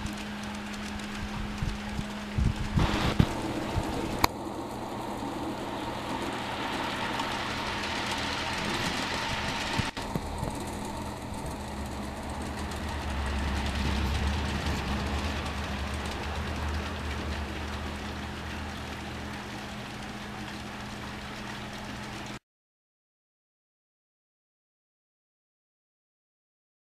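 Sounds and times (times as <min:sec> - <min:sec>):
low hum: 0:00.0 - 0:22.4
model train running on rails: 0:00.0 - 0:22.4.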